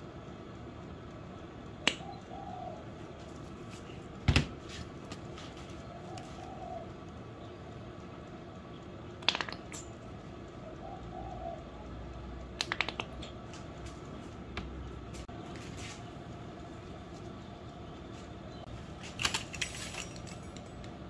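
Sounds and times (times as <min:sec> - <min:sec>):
steady room hum: 0:00.0 - 0:21.0
faint wavering coo: 0:02.0 - 0:03.0, 0:05.9 - 0:07.1, 0:10.6 - 0:12.1.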